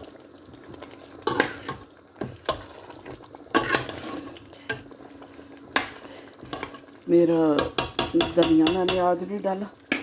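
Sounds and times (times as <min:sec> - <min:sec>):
metal spoon stirring in a pot: 0:01.2 - 0:04.9, 0:05.7 - 0:06.9, 0:07.6 - 0:09.2.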